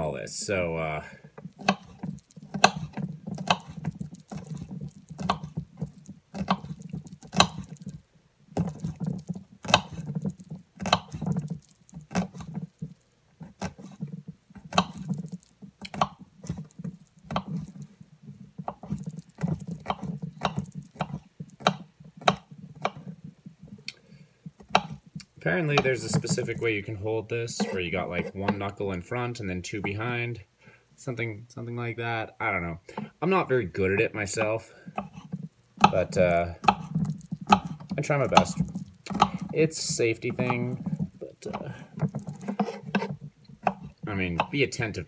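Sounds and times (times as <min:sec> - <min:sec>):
knife chopping on cutting board: 0:01.5 - 0:07.9, 0:08.6 - 0:17.8, 0:18.6 - 0:23.2, 0:24.5 - 0:25.1, 0:25.8 - 0:26.6, 0:27.6 - 0:28.6, 0:35.0 - 0:44.5.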